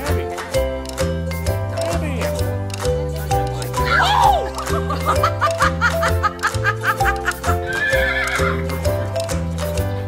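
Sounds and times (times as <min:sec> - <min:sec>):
music with repeating bass line: 0:00.0 - 0:10.0
woman laughing: 0:03.9 - 0:08.6.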